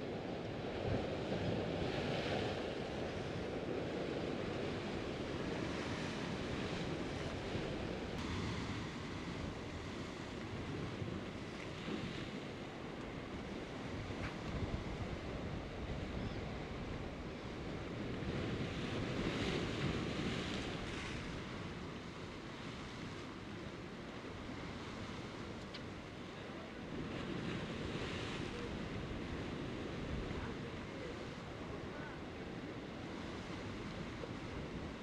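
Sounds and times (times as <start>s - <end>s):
wind on microphone: 0.0s - 23.6s, 26.8s - 35.0s
surf breaking over rocks: 0.8s - 13.0s, 25.0s - 35.0s.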